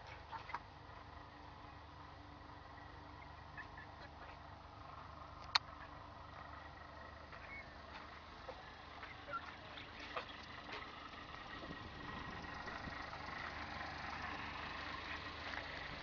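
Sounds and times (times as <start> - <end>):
faint chirps: 7.3 - 7.9.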